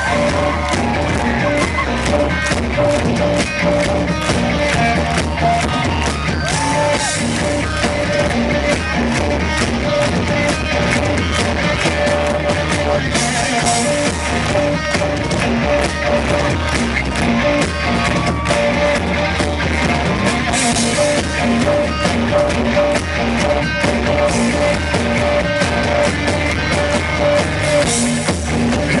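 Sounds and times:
drum kit beat: 0.0 - 29.0
electric guitar: 0.0 - 29.0.

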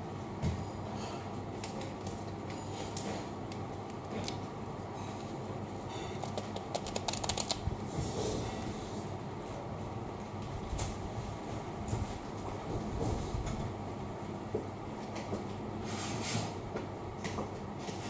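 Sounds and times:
steady low hum: 0.0 - 15.8
plastic packet crinkling: 6.2 - 7.7.

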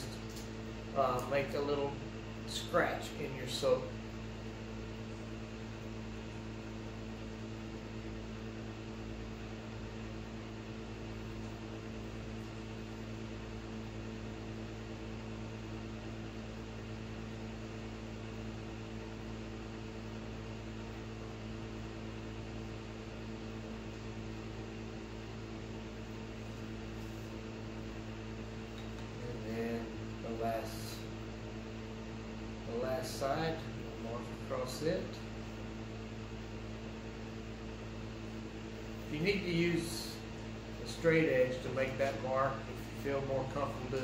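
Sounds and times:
steady electrical hum: 0.0 - 44.0.

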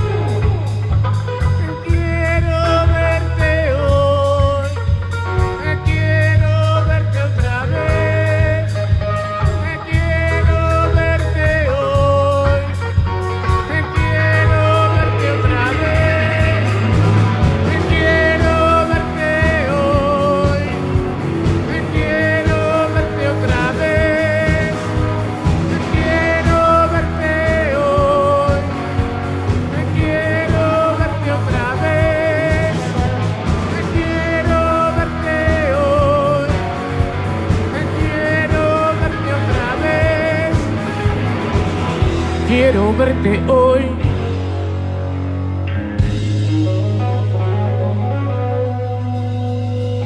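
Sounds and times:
drum kit beat: 0.0 - 47.5
bass: 0.0 - 50.0
electric guitar lead: 0.0 - 50.0.

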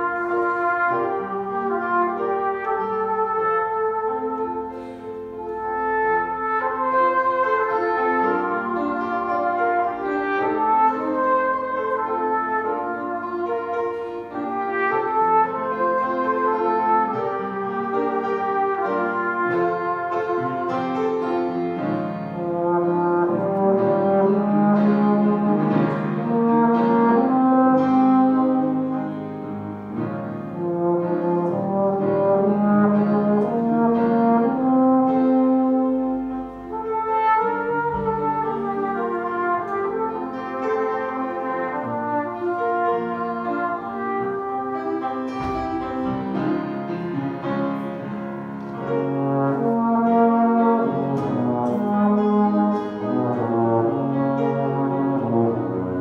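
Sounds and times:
euphonium playing: 0.0 - 56.0
flugelhorn playing: 0.0 - 56.0.

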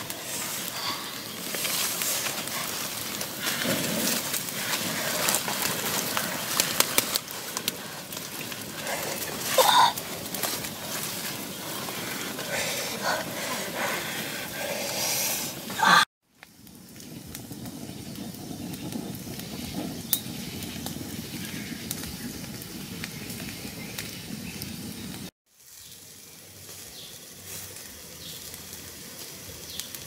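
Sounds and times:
fire crackles: 0.0 - 30.0
wood fire burning: 0.0 - 30.0
puffs of breath blown: 11.7 - 16.1.

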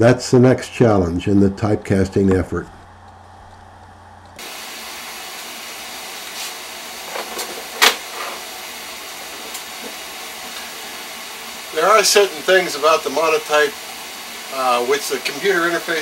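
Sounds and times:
steady hiss: 4.4 - 16.0.

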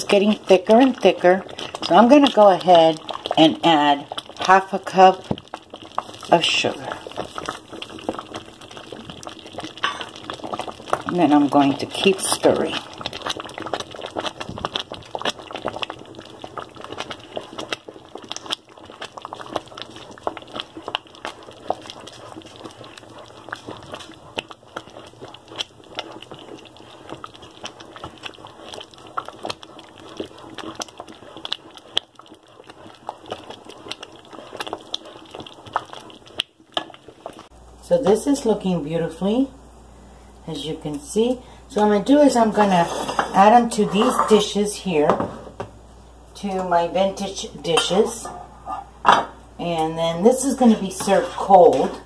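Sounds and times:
spoon stirring thick pudding: 0.1 - 37.4, 50.4 - 52.0.

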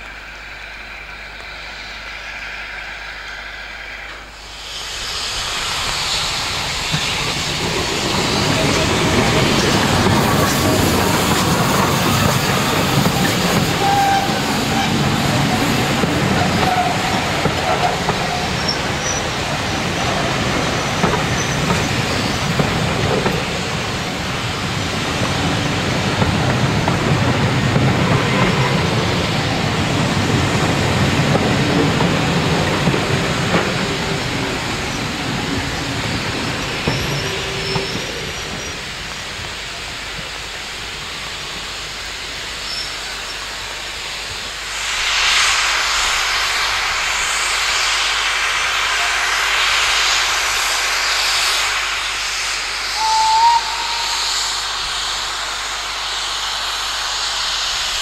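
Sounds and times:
steam hissing: 0.0 - 58.0
steam train rumble: 0.0 - 58.0
short high note: 53.0 - 54.8.

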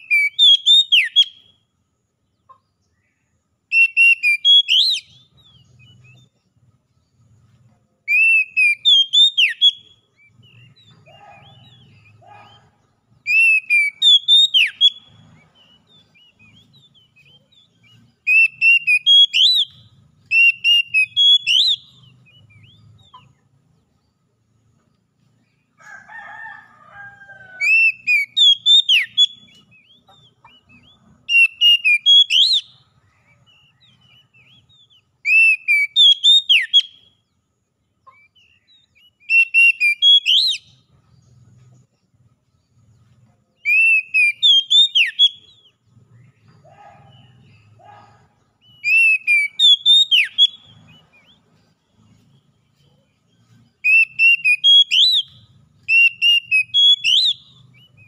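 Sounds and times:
bird singing whistled phrases: 0.0 - 1.6, 3.7 - 6.3, 8.1 - 23.2, 27.6 - 37.2, 38.2 - 40.8, 43.6 - 45.7, 46.6 - 51.4, 53.8 - 58.0.

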